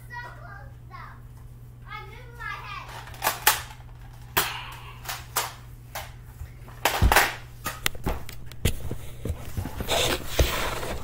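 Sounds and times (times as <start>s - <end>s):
toy blaster clicks and knocks: 2.9s - 6.1s.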